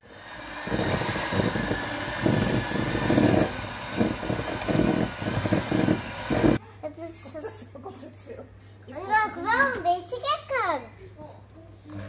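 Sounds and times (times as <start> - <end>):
electric mixer running: 0.0 - 6.6.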